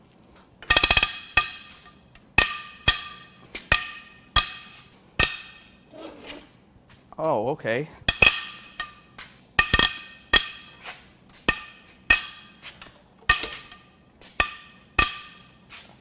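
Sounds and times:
metal-on-metal clanks: 0.6s - 5.8s, 8.0s - 10.8s, 11.4s - 15.6s.

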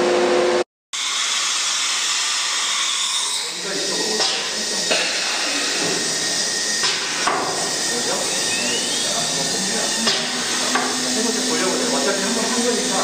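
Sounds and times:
workshop machinery running: 0.0s - 13.0s
rising machine whine: 4.6s - 13.0s.

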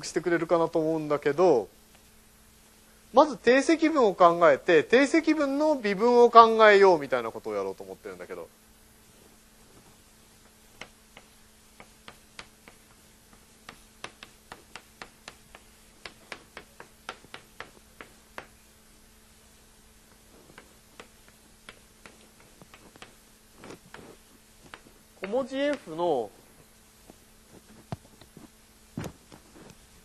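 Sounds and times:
faint steady hum: 0.0s - 30.0s
chalk tapping on blackboard: 9.8s - 18.6s, 20.1s - 26.0s.

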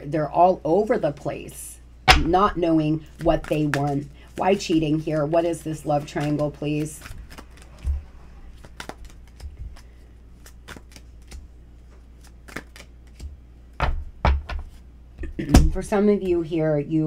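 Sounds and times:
cards shuffling and clicking: 3.1s - 14.8s
cards slapping: 3.1s - 14.8s.

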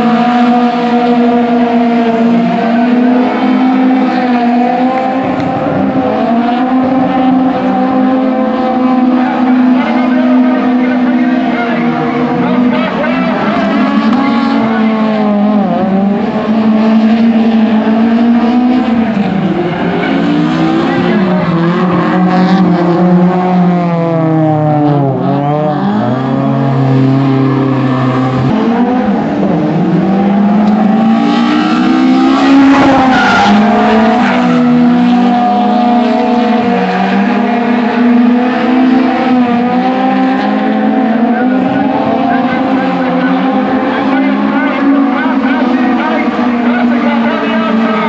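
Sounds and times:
car engines revving: 0.0s - 48.0s.

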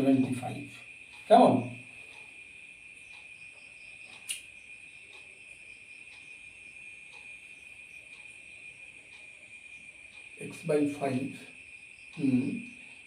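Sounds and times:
faint high-pitched drone: 0.0s - 13.0s
faint ticks: 0.6s - 13.0s
sharp click: 4.1s - 4.5s.

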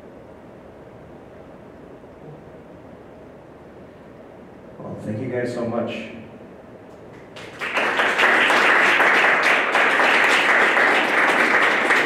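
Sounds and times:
audience applause: 7.4s - 12.0s.

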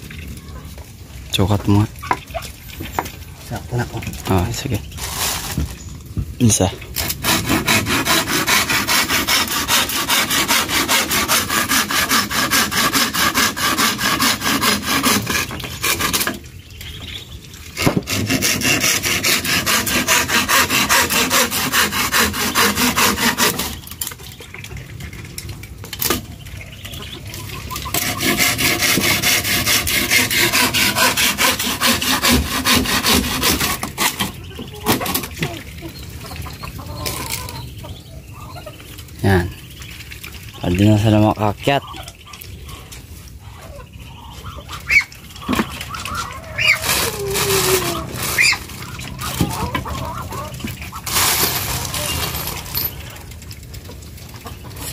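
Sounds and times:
handsaw cutting bamboo: 7.0s - 16.4s, 17.8s - 23.9s, 27.9s - 35.3s, 44.9s - 52.8s.

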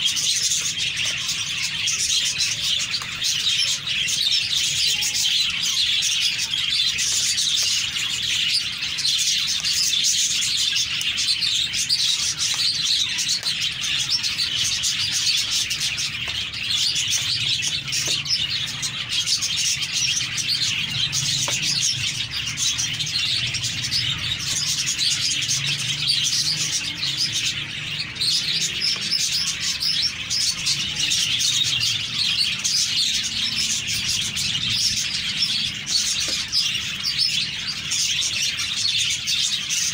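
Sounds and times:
small birds chirping chorus: 0.0s - 39.9s.

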